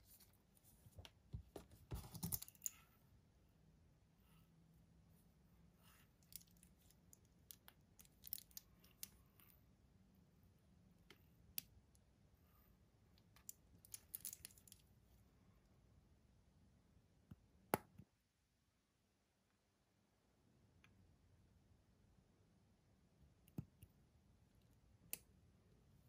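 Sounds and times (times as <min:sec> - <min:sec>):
watch bracelet clicking and clinking: 0:06.2 - 0:09.2, 0:13.3 - 0:14.8.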